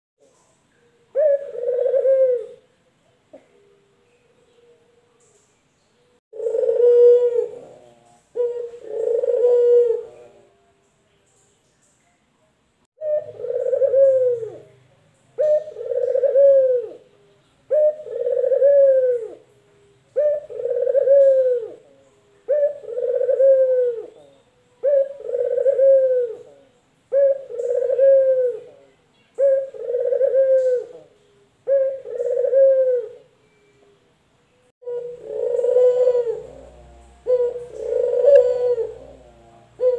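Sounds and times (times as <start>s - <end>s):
collared dove cooing: 1.0s - 2.7s, 6.3s - 10.6s, 13.0s - 14.8s, 15.4s - 33.7s, 34.8s - 39.9s.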